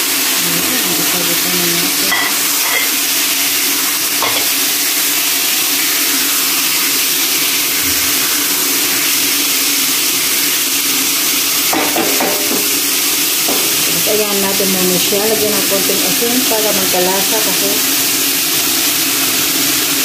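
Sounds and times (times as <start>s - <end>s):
chicken sizzling in frying pan: 0.0s - 20.0s
spatula knocking on pan: 11.7s - 14.0s.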